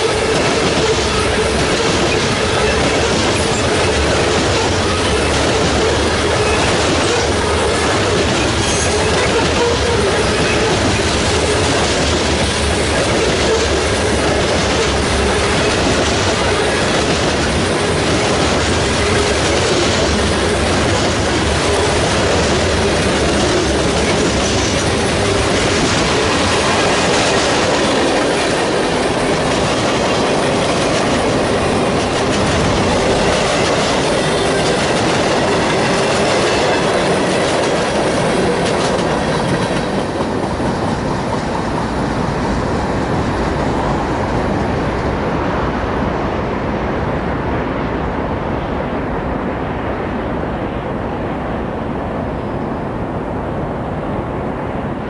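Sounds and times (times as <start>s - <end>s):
freight train wheels clattering: 0.0s - 43.8s.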